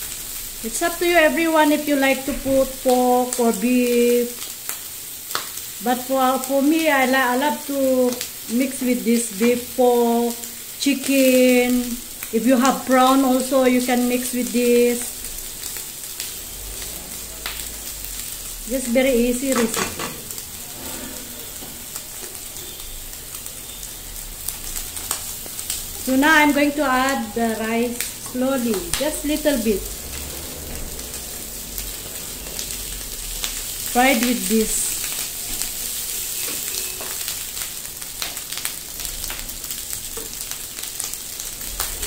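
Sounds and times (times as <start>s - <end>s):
meat and vegetables sizzling in oil: 0.0s - 42.0s
spatula stirring a pan: 15.1s - 27.1s, 29.9s - 41.5s
spatula scraping pan: 18.1s - 23.0s.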